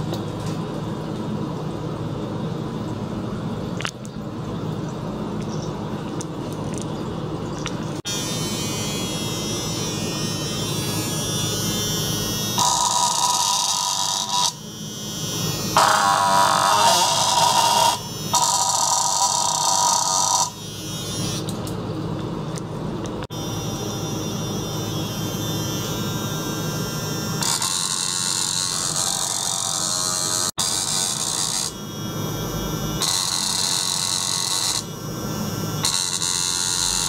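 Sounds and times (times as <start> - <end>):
circulation pump electric buzz: 0.0 - 37.0
hissy upper buzz: 8.1 - 21.6, 23.3 - 37.0.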